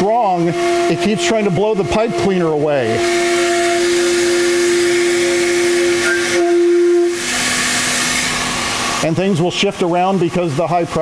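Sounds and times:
organ pipe steady note: 0.0 - 7.3.

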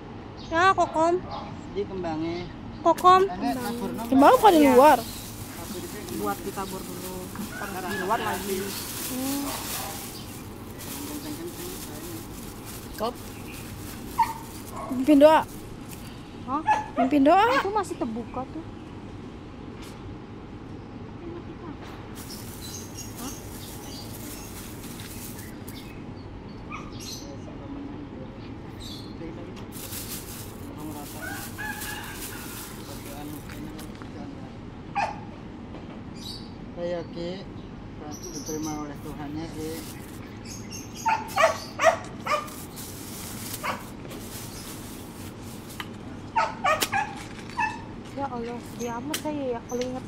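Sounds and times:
outdoor background noise: 0.0 - 50.0
dog barking: 14.2 - 15.1, 16.6 - 17.6, 26.7 - 27.0, 34.9 - 35.3, 41.0 - 42.6, 43.6 - 43.9, 46.3 - 47.9
high bird chirps: 22.2 - 27.3.

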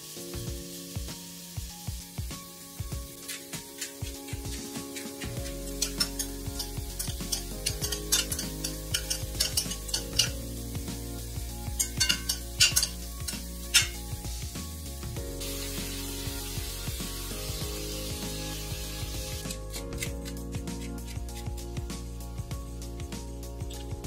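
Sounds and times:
soft background music: 0.0 - 24.0
spoon clinking in glass bowl: 11.8 - 14.0.

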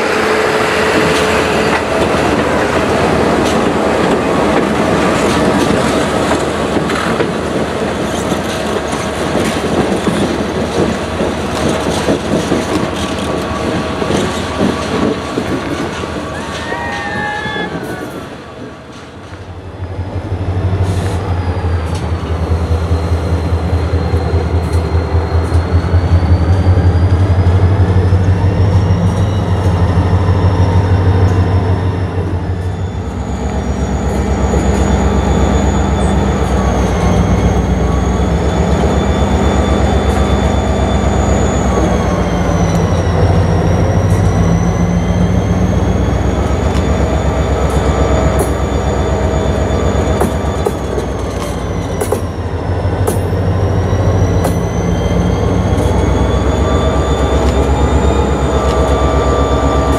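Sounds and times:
diesel locomotive engine drone: 0.0 - 59.9
wheels squealing: 20.4 - 59.9.

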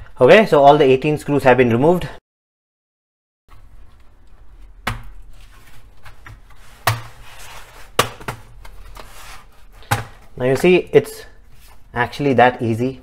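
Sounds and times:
plastic rubbing and handling: 3.5 - 10.8.

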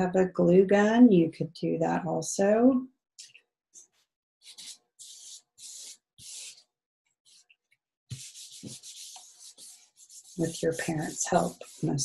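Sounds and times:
hands rubbing paper: 4.4 - 12.0.

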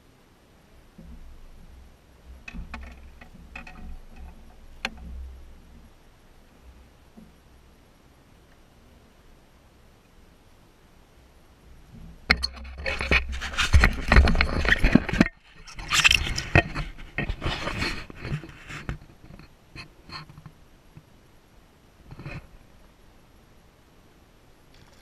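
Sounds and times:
camera handling noise: 12.8 - 18.8.

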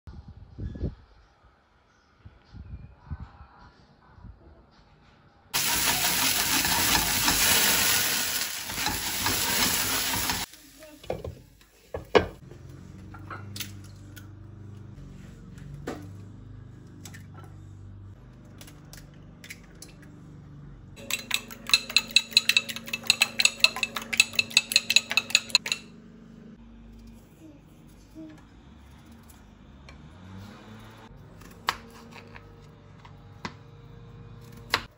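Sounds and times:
fork whisking eggs in bowl: 21.0 - 25.9.

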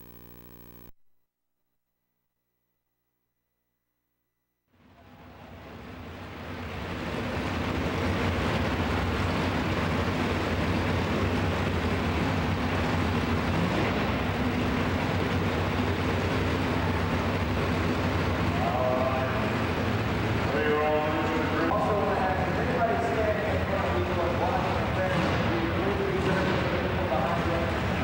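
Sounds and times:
truck engine idling: 4.8 - 28.0.

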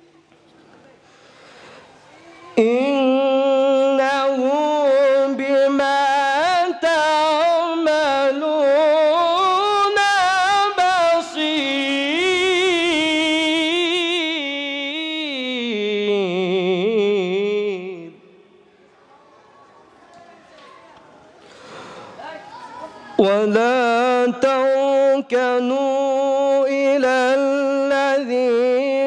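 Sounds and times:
man chanting melodically: 2.6 - 18.4, 23.2 - 29.0.

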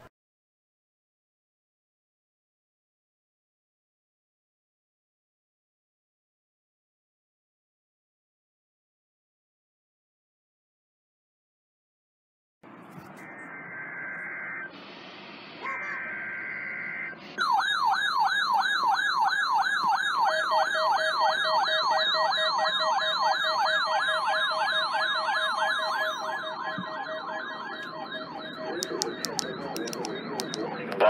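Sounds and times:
warbling data bursts: 12.8 - 17.5, 21.0 - 31.0
yelping alert siren: 13.2 - 14.8, 15.6 - 31.0
steady low tone: 25.1 - 31.0.

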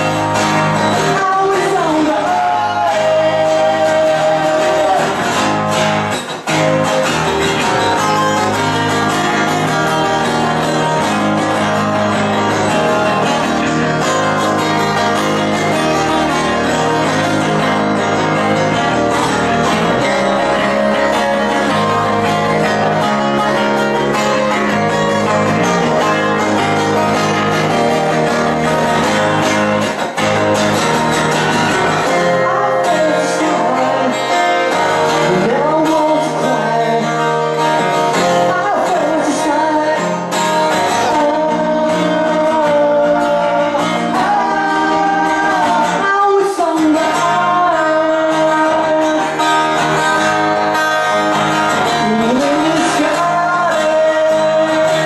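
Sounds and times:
acoustic guitars strummed: 0.0 - 55.0
person singing: 0.0 - 55.0.

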